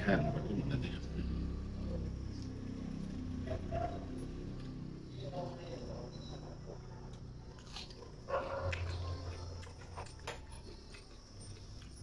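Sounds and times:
chewing and mouth smacks: 0:07.0 - 0:12.0.

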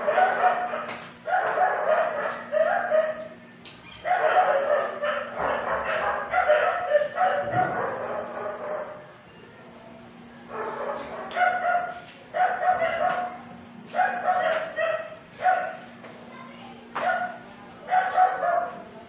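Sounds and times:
dog drawn-out calls: 0:00.0 - 0:09.0.

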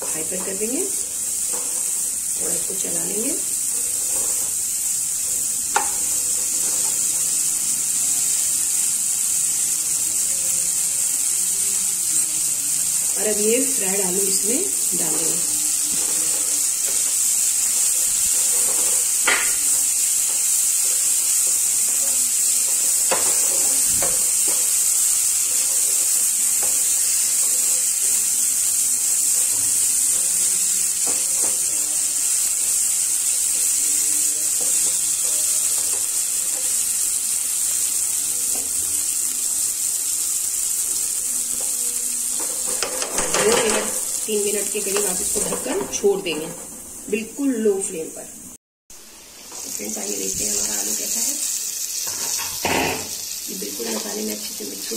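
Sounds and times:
potatoes sizzling in a pan: 0:00.0 - 0:54.9
spatula scraping and tapping: 0:01.4 - 0:02.0, 0:03.7 - 0:04.6, 0:05.7 - 0:07.2, 0:15.9 - 0:27.8, 0:41.5 - 0:44.1.

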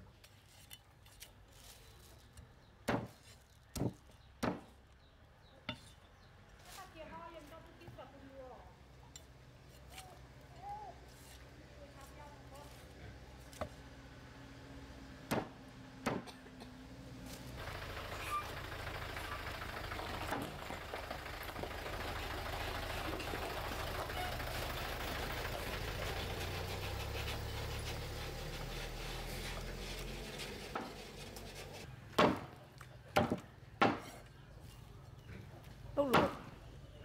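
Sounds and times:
cleaver chopping on wooden block: 0:02.9 - 0:04.7, 0:15.3 - 0:16.3, 0:32.2 - 0:32.6, 0:33.2 - 0:34.2
truck engine running: 0:12.3 - 0:32.1.

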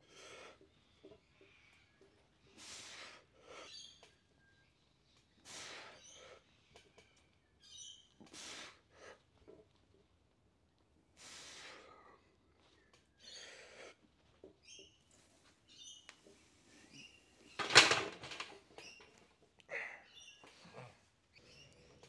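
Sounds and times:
birds chirping: 0:03.2 - 0:08.3, 0:11.8 - 0:17.8, 0:18.6 - 0:22.0.

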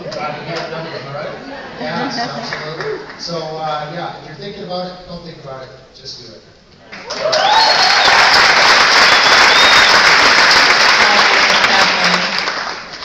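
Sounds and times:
crowd applauding: 0:02.0 - 0:03.4, 0:06.9 - 0:13.0
high cheer: 0:06.9 - 0:12.4.

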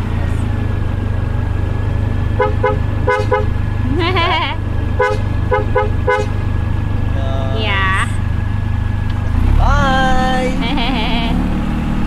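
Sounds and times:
toy vehicle horn beeping: 0:02.4 - 0:03.6, 0:05.0 - 0:06.4.

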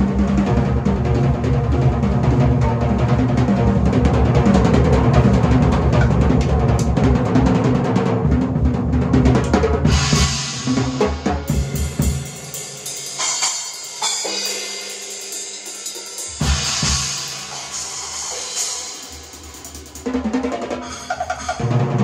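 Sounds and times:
bass drum and tom strokes: 0:00.0 - 0:22.0
cymbal strikes: 0:09.9 - 0:20.2.

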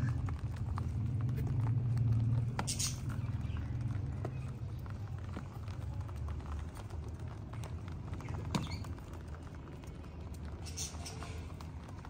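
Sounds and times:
low steady rumble: 0:00.0 - 0:12.0
rabbits clicking on concrete: 0:00.0 - 0:12.0.

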